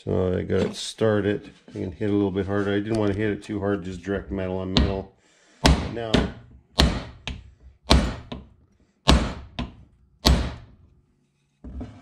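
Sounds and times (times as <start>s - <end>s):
hammer knocking on wooden block: 4.7s - 5.0s, 5.6s - 8.5s, 9.1s - 10.7s.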